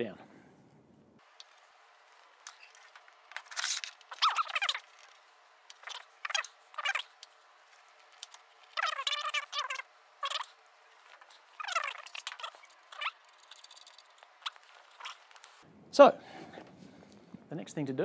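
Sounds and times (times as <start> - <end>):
high chirpy squeaks and scrapes: 2.4 - 15.6.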